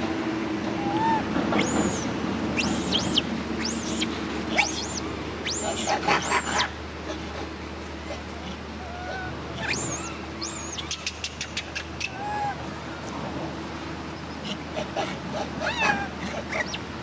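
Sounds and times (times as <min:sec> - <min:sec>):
baby monkey screaming: 0:00.8 - 0:06.7, 0:08.8 - 0:11.2, 0:12.0 - 0:12.6, 0:15.6 - 0:16.8.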